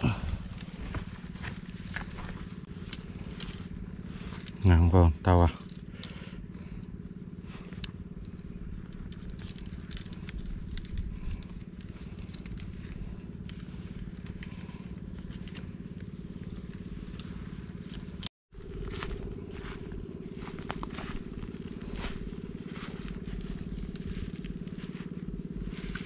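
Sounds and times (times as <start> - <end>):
small engine running: 0.0 - 26.0
crackles and clicks: 7.7 - 18.3.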